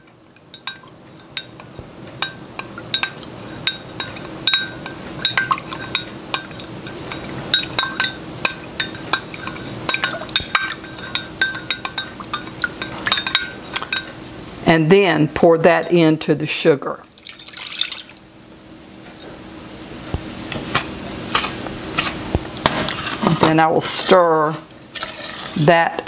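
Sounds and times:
spoon clinking in glass cup: 0:00.5 - 0:14.1.

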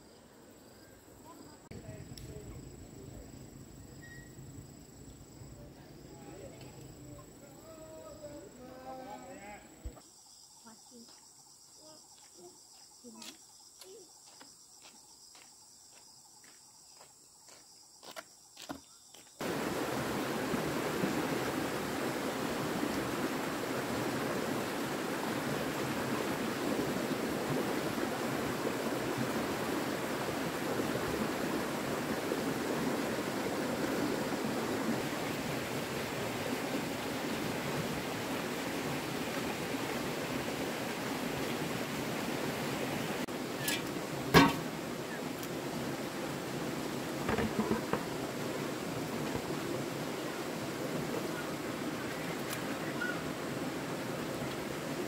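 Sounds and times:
running water rushing: 0:19.4 - 0:55.0.

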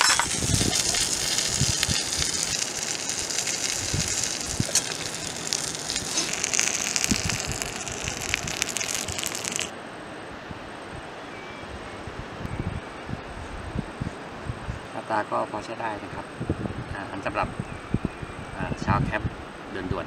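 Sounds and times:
food sizzling and popping in skillet: 0:00.0 - 0:09.7
outdoor background: 0:00.0 - 0:20.0.

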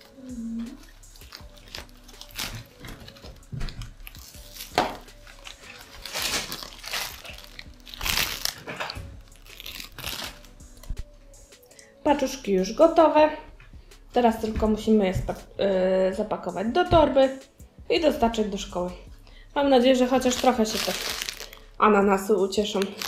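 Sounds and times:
plastic bag crinkling: 0:00.4 - 0:10.6, 0:20.0 - 0:21.7, 0:22.6 - 0:23.0.

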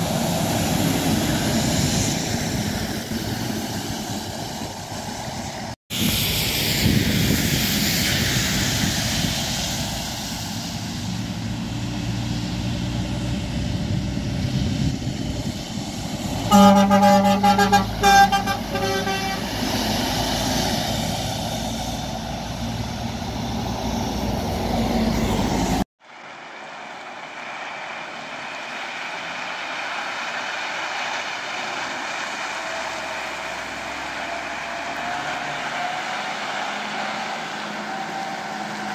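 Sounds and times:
heavy trucks passing: 0:00.0 - 0:38.9
truck horn blasts: 0:16.5 - 0:19.8.

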